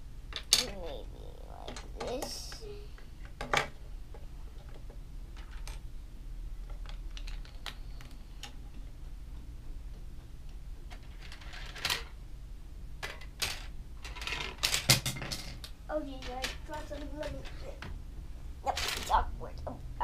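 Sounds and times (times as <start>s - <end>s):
plastic bricks clicking on table: 6.7s - 7.8s.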